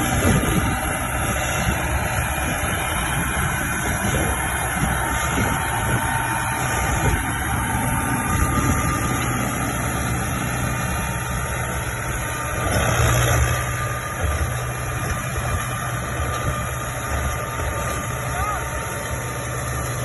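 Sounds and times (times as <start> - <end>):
tractor diesel engine: 0.0 - 20.0.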